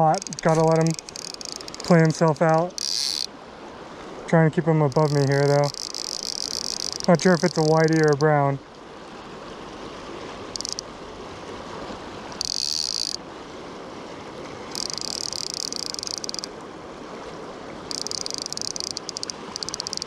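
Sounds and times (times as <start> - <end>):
fly reel drag clicking: 0.0 - 3.3, 4.9 - 8.3, 10.5 - 10.8, 12.3 - 13.2, 14.7 - 16.5, 17.9 - 20.0
river rushing over riffle: 0.0 - 20.0.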